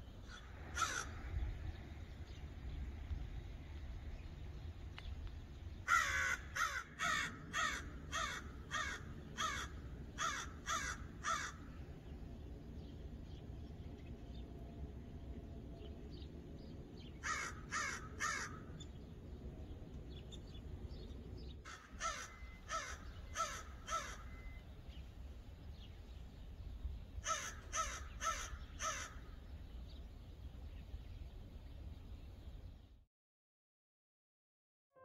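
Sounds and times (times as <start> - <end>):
faint low rumble: 0.0 - 6.0, 7.3 - 17.6
crow cawing: 0.3 - 1.2, 5.9 - 11.7, 17.2 - 18.7, 21.6 - 24.5, 27.2 - 29.3.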